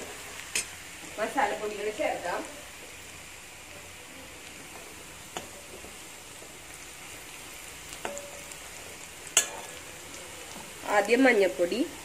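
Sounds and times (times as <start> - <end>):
onions sizzling in oil: 0.0 - 12.0
metal spoon knocking on a wok: 8.0 - 8.4.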